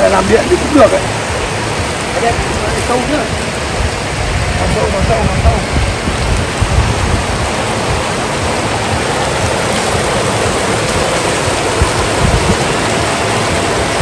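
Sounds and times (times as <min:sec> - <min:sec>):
stream rushing over rocks: 0:00.0 - 0:14.0.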